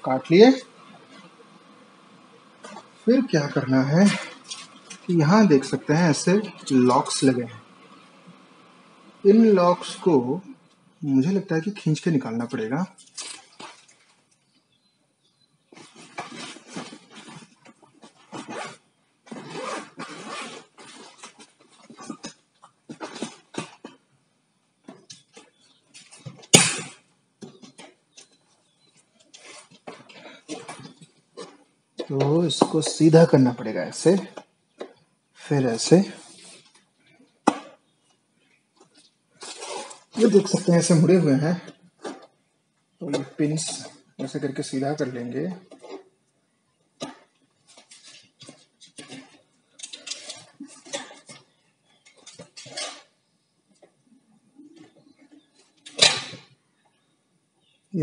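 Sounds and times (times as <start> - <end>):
loud sharp snap: 26.5 - 27.0
metallic clinks and scrapes: 47.7 - 51.4, 52.0 - 53.2.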